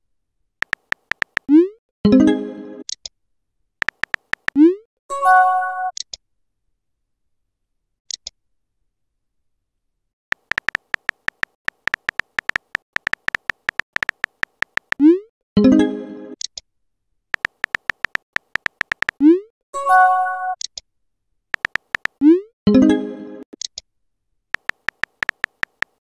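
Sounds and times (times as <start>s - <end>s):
phone keyboard tapping clicks: 0.6s - 1.5s, 3.8s - 4.6s, 10.3s - 15.0s, 17.4s - 19.2s, 21.6s - 22.2s, 24.6s - 26.0s.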